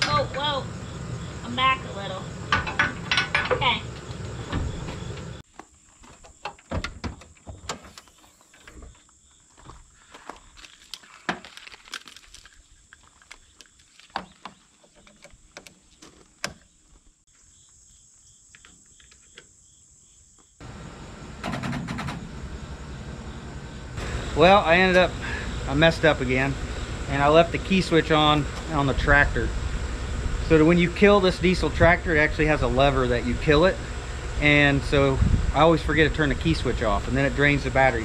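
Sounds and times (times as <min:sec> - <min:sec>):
insect drone: 0:00.0 - 0:14.6, 0:16.5 - 0:38.0
metal clanking: 0:02.5 - 0:05.4.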